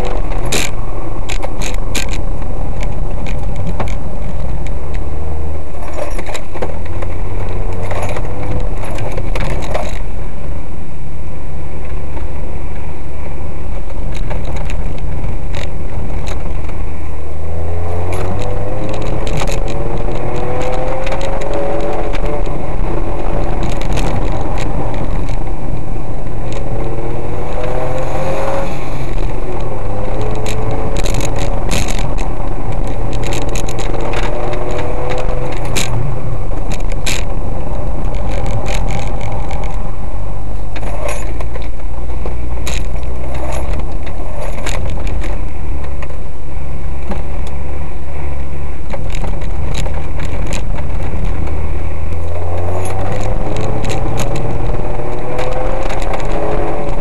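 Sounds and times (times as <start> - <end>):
road and wind noise: 0.0 - 57.0
car engine revving up: 13.8 - 46.2, 46.8 - 57.0.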